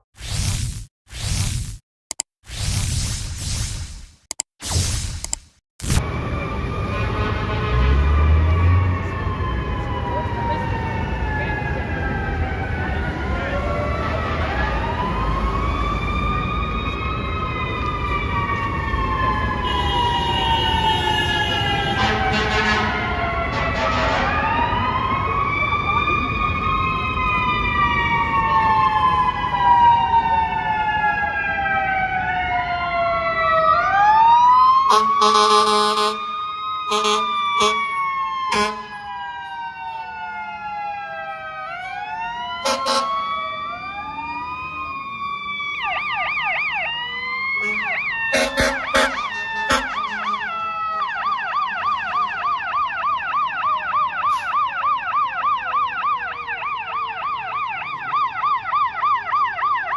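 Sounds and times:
electronic siren yelp: 0:05.8 - 0:59.9
mechanical sirens wailing: 0:05.8 - 0:59.9
air horn blasts: 0:07.0 - 0:08.0, 0:19.6 - 0:23.0, 0:34.9 - 0:36.3, 0:36.9 - 0:37.9, 0:38.5 - 0:38.9, 0:42.6 - 0:43.2, 0:47.6 - 0:50.4.

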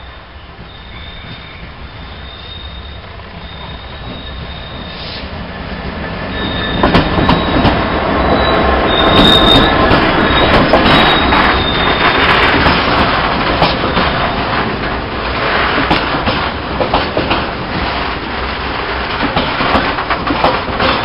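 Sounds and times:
high wheel squeal: 0:00.0 - 0:05.3, 0:06.0 - 0:12.6
diesel locomotive passing: 0:00.0 - 0:21.0
wheels clattering over track: 0:06.3 - 0:21.0.

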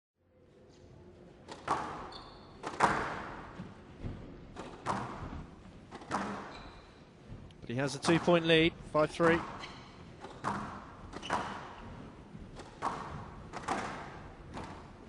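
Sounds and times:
squash ball struck by rackets: 0:01.5 - 0:03.5, 0:04.5 - 0:06.5, 0:10.2 - 0:11.9, 0:12.5 - 0:15.0.

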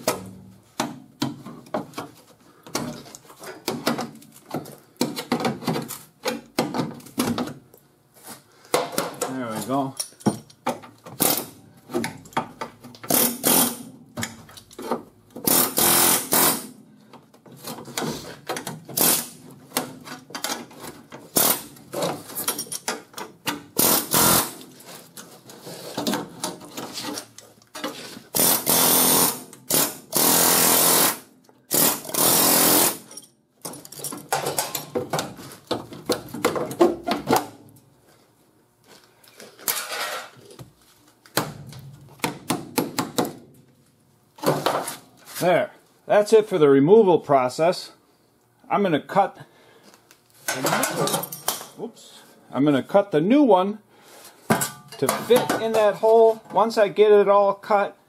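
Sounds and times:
air hammer hammering: 0:15.4 - 0:16.8.

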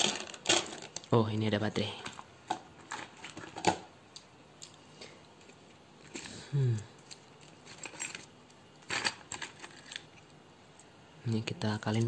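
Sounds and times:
man humming: 0:06.4 - 0:06.9.

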